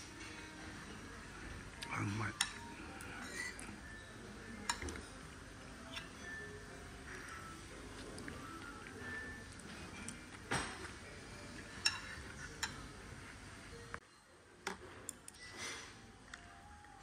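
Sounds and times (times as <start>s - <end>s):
ceramic bowls and spoon clinking: 2.3s - 5.2s, 5.8s - 7.6s, 8.4s - 13.0s.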